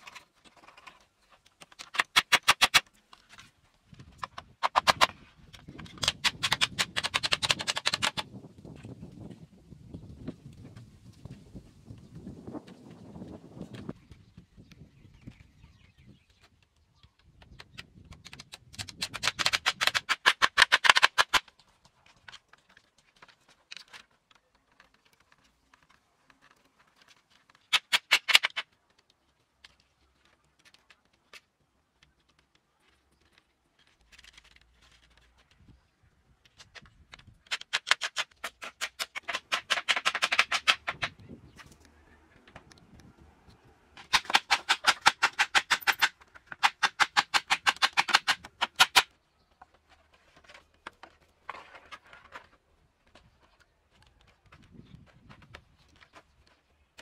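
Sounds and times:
sharp wooden taps on bamboo: 16.2 - 32.6, 36.5 - 43.1, 44.0 - 49.8.

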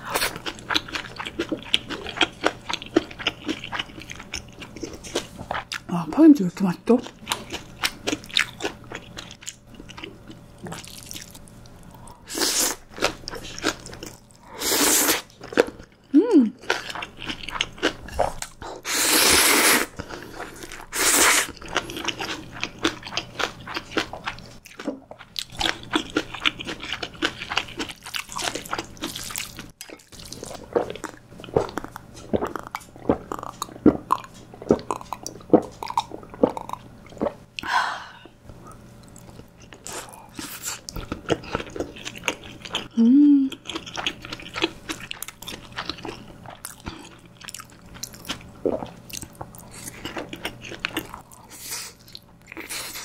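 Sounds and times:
wet chewing and crunching: 0.0 - 5.9, 6.9 - 14.5, 15.1 - 18.8, 19.9 - 37.7, 38.6 - 53.0
noodle slurping: 18.8 - 21.6.

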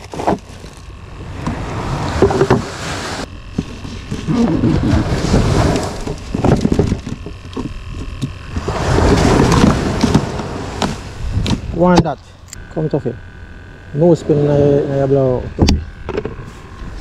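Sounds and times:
wind rumbling on microphone: 1.0 - 12.0.

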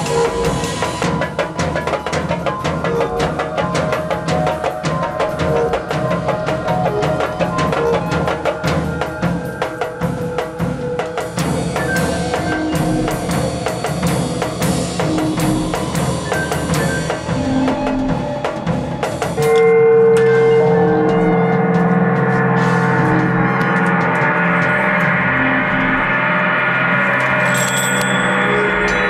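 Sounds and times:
drum kit playing fast: 0.0 - 19.6
gong ringing: 19.4 - 29.0.

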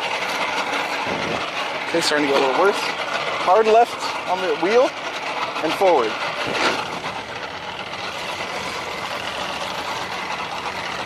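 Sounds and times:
boat engine running: 0.0 - 11.0
water noise: 0.0 - 11.0
wind noise: 1.0 - 1.5.

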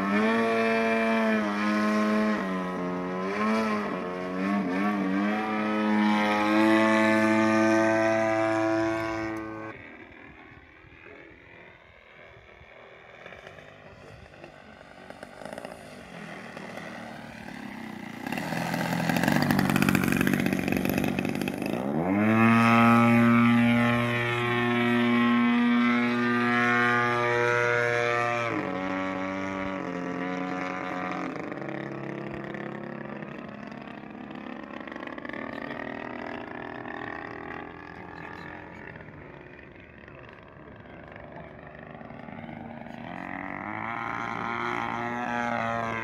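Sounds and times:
model plane engine and propeller: 0.0 - 46.0.

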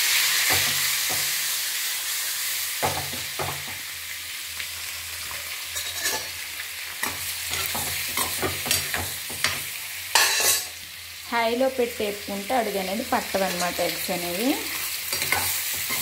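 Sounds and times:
eggs sizzling in oil: 0.0 - 16.0
spoon knocking and scraping pan: 2.8 - 3.8, 7.0 - 10.7, 14.8 - 16.0.

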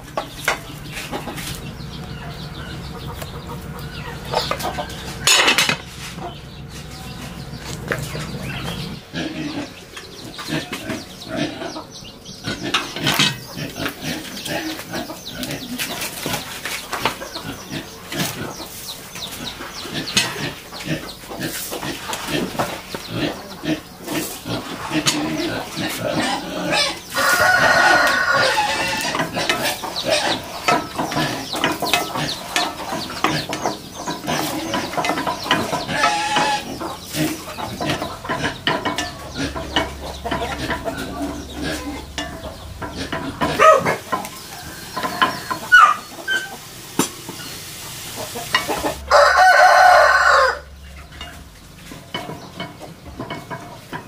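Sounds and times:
chickens clucking: 0.0 - 54.0
rooster crowing: 26.8 - 29.2, 48.8 - 50.8.

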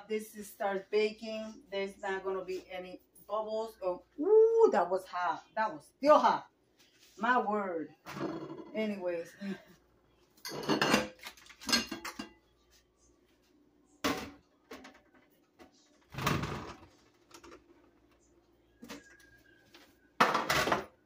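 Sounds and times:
metal baking pans clattering: 10.4 - 12.4, 20.2 - 21.0.

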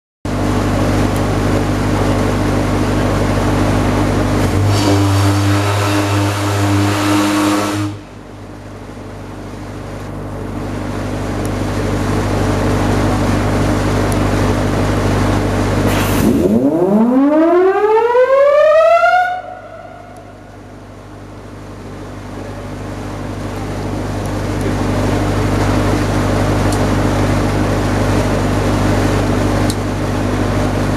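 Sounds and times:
low machinery hum: 0.3 - 30.9
ship siren: 4.5 - 8.2, 16.2 - 21.3.

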